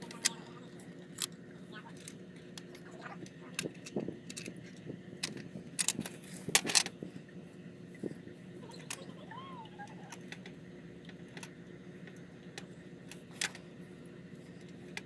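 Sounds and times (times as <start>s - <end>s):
steady low hum: 0.0s - 15.0s
clicks of small hard parts: 1.2s - 7.0s.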